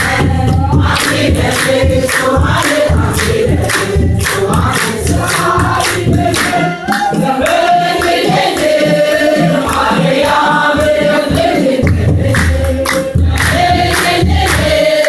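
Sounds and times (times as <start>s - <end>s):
congregation singing a hymn: 0.0s - 15.0s
steady drum beat: 0.0s - 15.0s.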